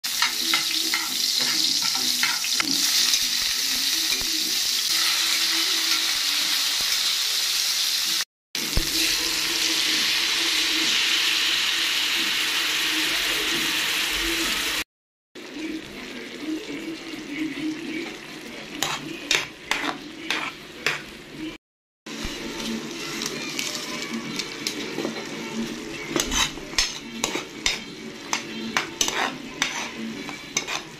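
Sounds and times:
hot oil sizzling in a pan: 0.0s - 14.8s, 22.1s - 30.9s
metal spatula scraping a pan: 18.6s - 21.2s, 22.2s - 30.9s.

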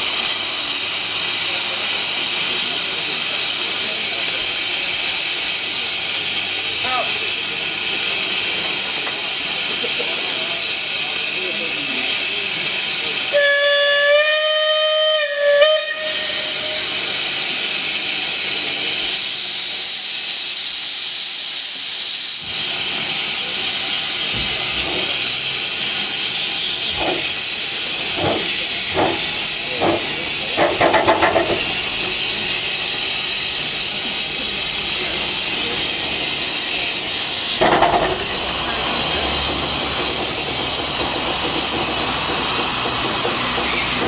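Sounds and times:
steam hissing: 0.0s - 44.0s
steam locomotive whistle: 13.2s - 17.2s
locomotive exhaust beats: 23.5s - 44.0s.

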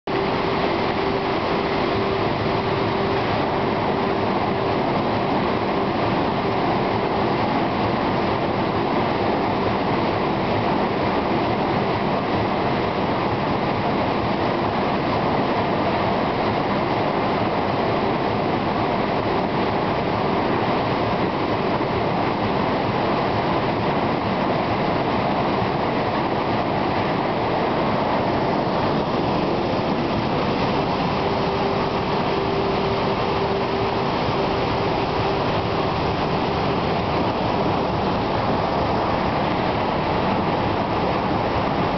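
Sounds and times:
faint hum: 0.1s - 41.9s.

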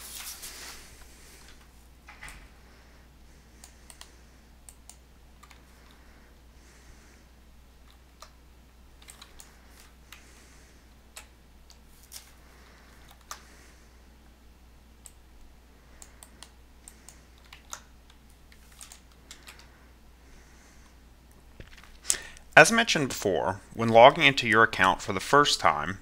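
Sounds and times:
keyboard and mouse clicks: 3.6s - 6.0s, 9.0s - 10.2s, 13.0s - 13.4s, 16.0s - 19.7s.

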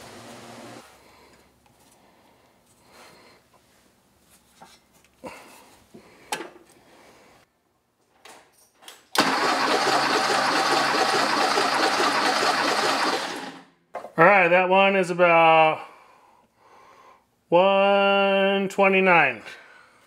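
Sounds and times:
car engine cranking on starter: 9.2s - 13.6s.

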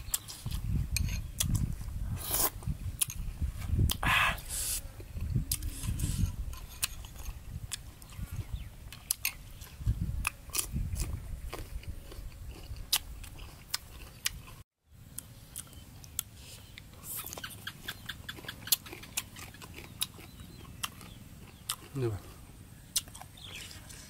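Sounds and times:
chewing and crunching vegetables: 0.0s - 4.0s, 4.9s - 24.0s
mouth clicks and smacks: 17.0s - 22.0s, 22.9s - 23.6s.

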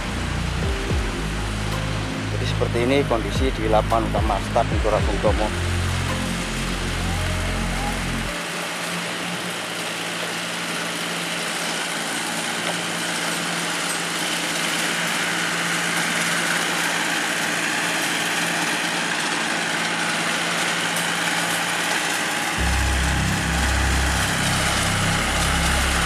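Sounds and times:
deep low rumble: 0.0s - 8.3s, 22.6s - 26.0s
machine engine drone: 0.0s - 26.0s.

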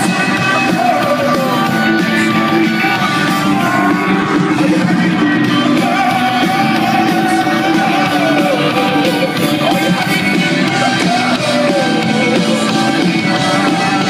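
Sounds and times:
rock band playing live: 0.0s - 14.0s.

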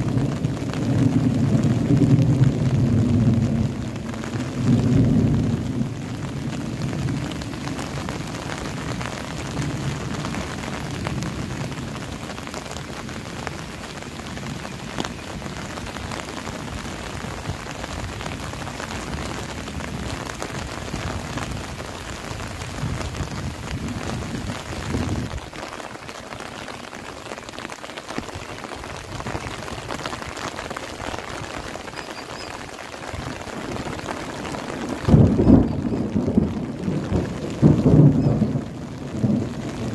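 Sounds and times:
rolling thunder: 0.0s - 12.0s, 33.2s - 39.9s
steady rain: 0.0s - 39.9s
loud thunderclap: 0.1s - 7.6s, 34.8s - 39.9s.

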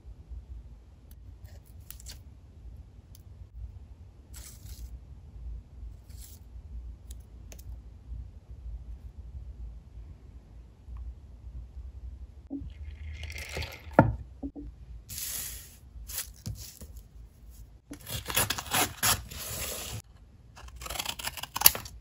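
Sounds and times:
paper tearing: 17.9s - 20.0s, 20.6s - 22.0s.

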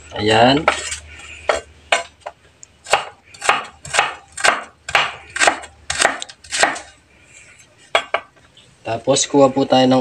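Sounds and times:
knife chopping on wooden board: 2.8s - 6.9s.

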